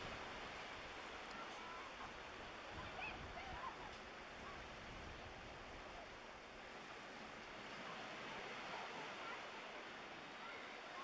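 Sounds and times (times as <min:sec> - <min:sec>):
small waves on shore: 0:00.0 - 0:11.0.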